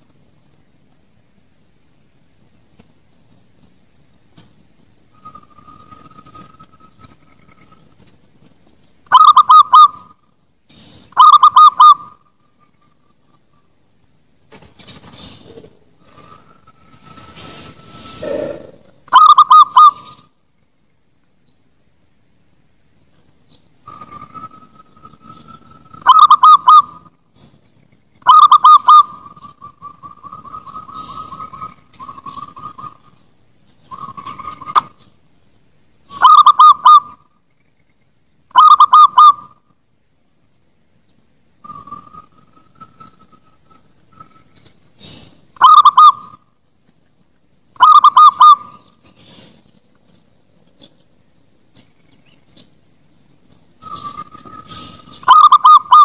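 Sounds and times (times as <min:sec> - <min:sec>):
dove cooing: 0:09.1 - 0:10.2, 0:11.2 - 0:12.2, 0:18.1 - 0:20.3, 0:23.9 - 0:27.1, 0:28.2 - 0:33.2, 0:36.1 - 0:37.2, 0:38.5 - 0:39.6, 0:45.0 - 0:46.4, 0:47.8 - 0:49.6, 0:53.8 - 0:56.0.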